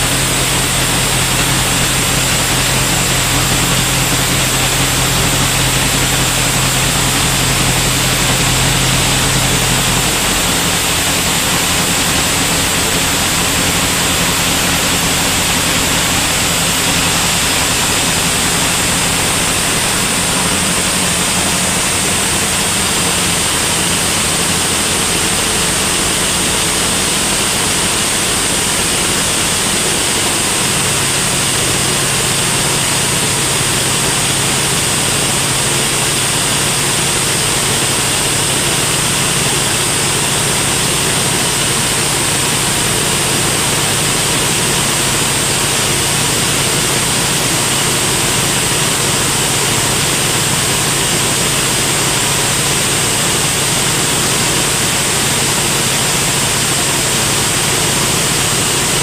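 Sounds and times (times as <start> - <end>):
band saw cutting log: 0.0 - 59.0.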